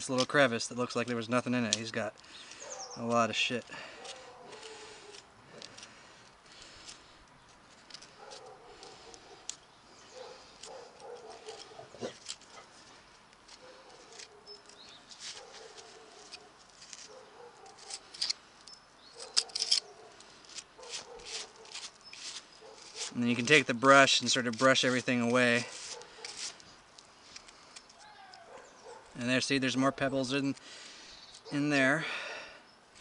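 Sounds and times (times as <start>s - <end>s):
hoof pick scraping hoof: 2.5s - 29.1s
animal whining: 10.1s - 12.7s, 28.0s - 29.1s.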